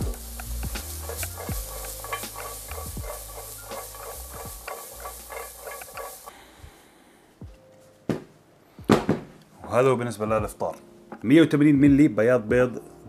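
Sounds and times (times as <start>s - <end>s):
asparagus sizzling in a frying pan: 0.0s - 6.3s.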